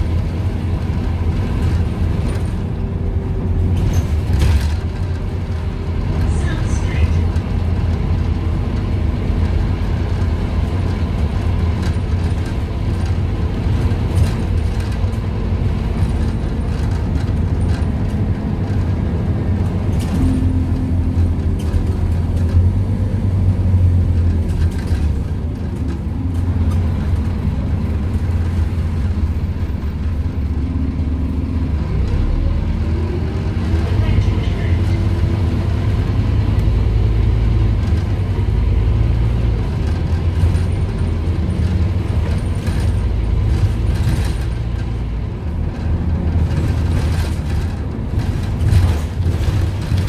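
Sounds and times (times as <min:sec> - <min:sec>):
bus diesel engine drone: 0:00.0 - 0:50.0
road noise: 0:00.0 - 0:50.0
interior rattles: 0:39.2 - 0:50.0.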